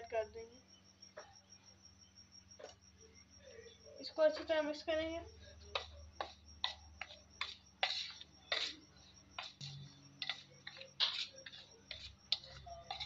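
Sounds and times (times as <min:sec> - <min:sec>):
spoon scraping steel bowl: 0:07.4 - 0:13.0.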